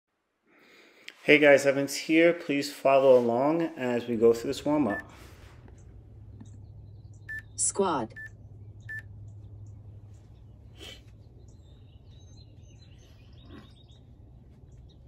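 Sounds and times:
steady low hum: 3.0s - 15.0s
bird chirps: 5.8s - 15.0s
short electronic beeps: 7.3s - 7.5s, 8.1s - 9.1s.

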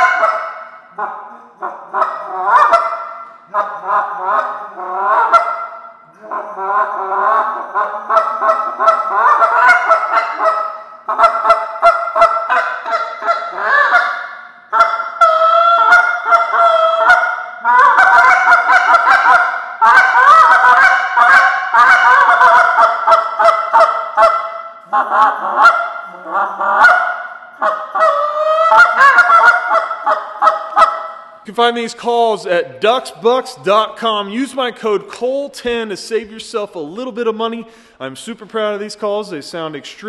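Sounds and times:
goose call honking: 0.0s - 31.3s.

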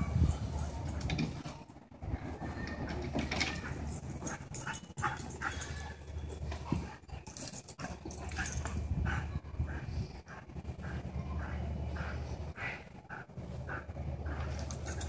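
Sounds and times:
dogs panting: 3.5s - 15.0s.

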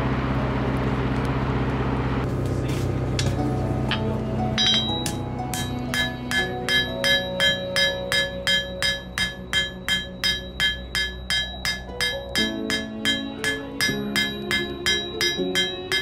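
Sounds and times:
hammer blows on anvil: 3.2s - 16.0s.

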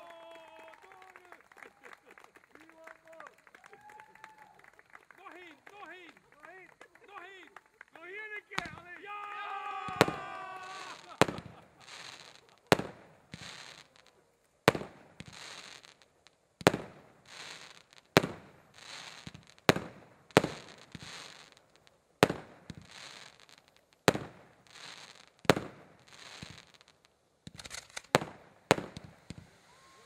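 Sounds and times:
firework bangs: 0.0s - 30.0s
short hiss: 27.4s - 30.0s.

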